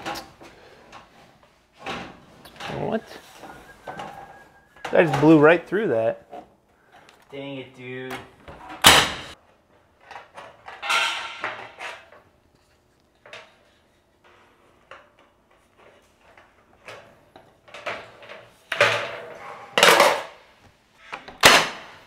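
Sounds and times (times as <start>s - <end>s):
sheet metal clanking and scraping: 10.7s - 12.1s.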